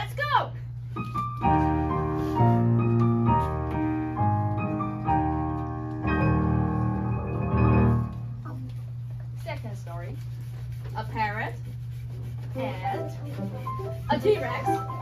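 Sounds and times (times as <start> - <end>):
keyboard playing held chords: 1.4 - 8.3.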